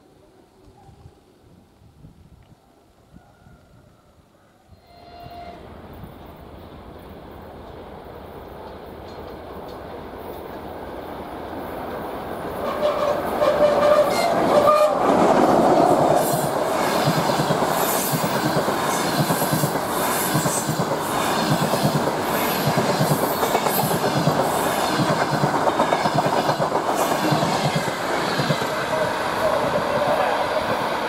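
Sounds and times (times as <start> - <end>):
train horn: 4.7 - 5.8, 12.6 - 15.0
train wheels clickety-clack: 7.6 - 31.0.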